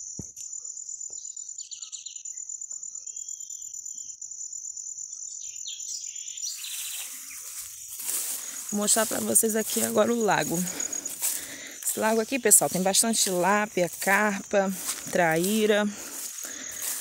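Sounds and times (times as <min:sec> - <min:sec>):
insects trilling: 0:00.0 - 0:17.0
bird chirps: 0:00.4 - 0:04.2, 0:05.1 - 0:07.9.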